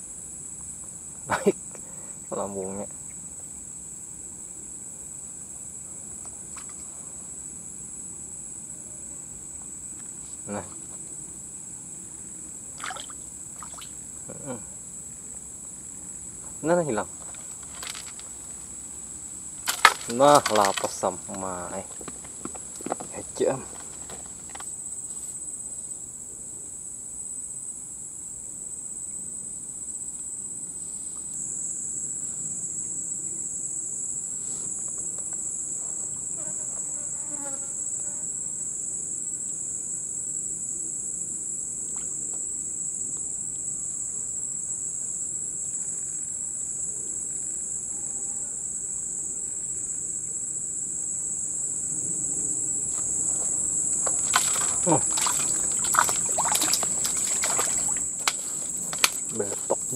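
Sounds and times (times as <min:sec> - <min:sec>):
tropical insects droning: 0:00.0 - 0:59.9
fish splashing in water: 0:12.8 - 0:14.0, 0:54.0 - 0:59.3.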